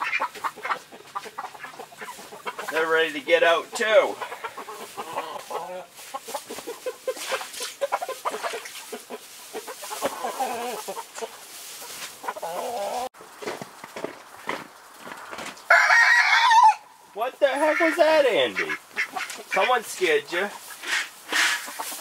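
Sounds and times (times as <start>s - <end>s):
chickens clucking: 0.0s - 15.8s, 16.5s - 22.0s.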